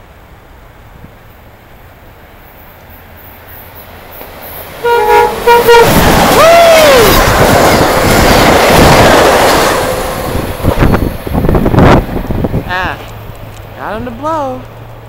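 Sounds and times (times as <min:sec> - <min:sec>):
train rushing past: 0:00.1 - 0:15.0
train horn toots: 0:04.8 - 0:07.2.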